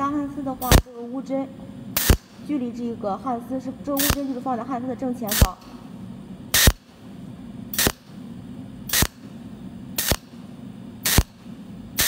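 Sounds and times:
welder zaps: 0:00.6 - 0:01.1, 0:02.0 - 0:02.5, 0:03.9 - 0:04.6, 0:05.2 - 0:05.8, 0:06.5 - 0:06.9, 0:07.7 - 0:08.2, 0:08.9 - 0:09.3, 0:10.0 - 0:10.4, 0:11.0 - 0:12.0.

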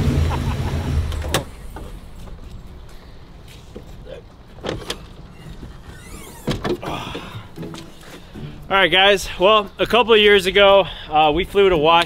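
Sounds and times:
car door squeaking: 0:04.6 - 0:08.4.

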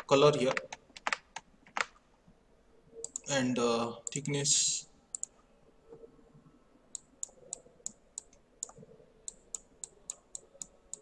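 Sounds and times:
computer mouse button clicking: 0:03.0 - 0:03.3, 0:07.0 - 0:11.0.

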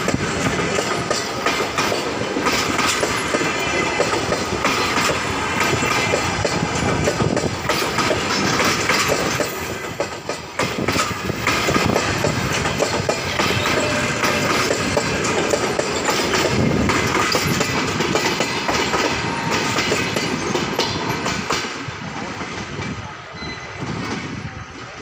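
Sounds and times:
train wheels clacking over rail joints: 0:00.0 - 0:23.0
train running noise: 0:00.0 - 0:25.0.

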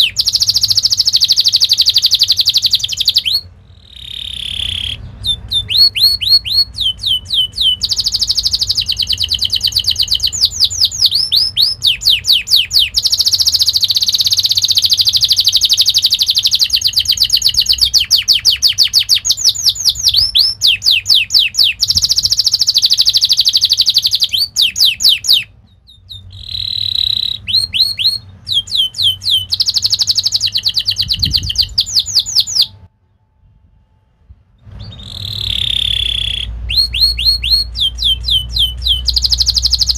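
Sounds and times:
canary singing trills: 0:00.0 - 0:32.9, 0:34.7 - 0:39.9.

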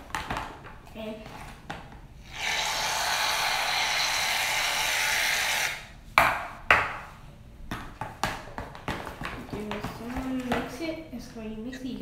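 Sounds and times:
aerosol can hissing: 0:02.2 - 0:05.9.

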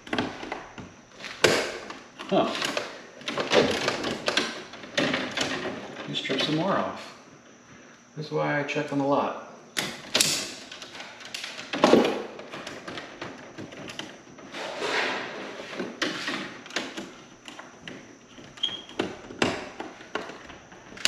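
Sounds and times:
wires scraping and rustling: 0:12.4 - 0:21.0.

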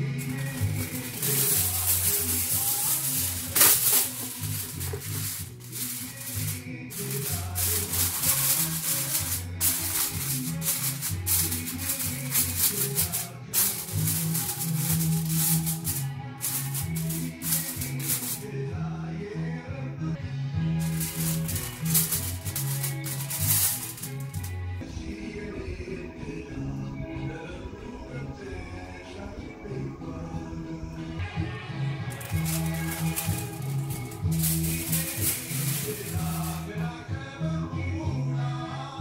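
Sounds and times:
shaker percussion: 0:00.0 - 0:18.5, 0:20.8 - 0:24.5, 0:32.1 - 0:36.8.

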